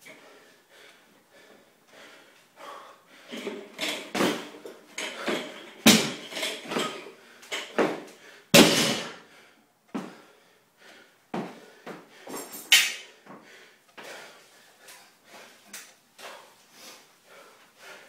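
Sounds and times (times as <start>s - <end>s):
barbell dropped on floor: 3.4s - 7.0s, 8.6s - 9.2s.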